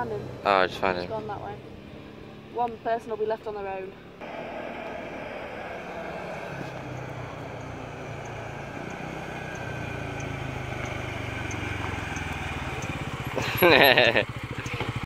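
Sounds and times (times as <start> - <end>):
quad bike engine running: 4.2 - 15.0.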